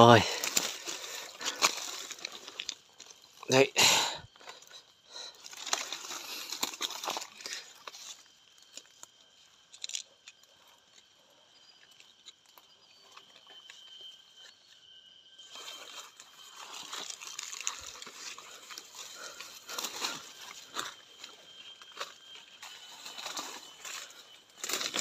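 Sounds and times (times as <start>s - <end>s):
rustling in dry leaves: 0.0s - 3.7s, 5.1s - 9.1s, 15.4s - 25.0s
thin steady high tone: 0.0s - 25.0s.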